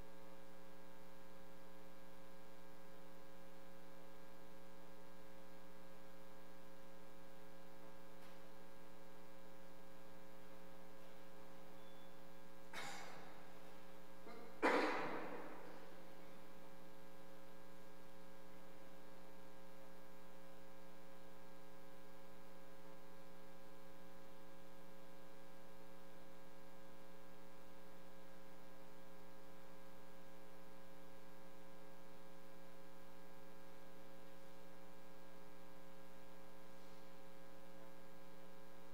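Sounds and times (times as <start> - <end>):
sudden loud knock: 14.6 - 15.6.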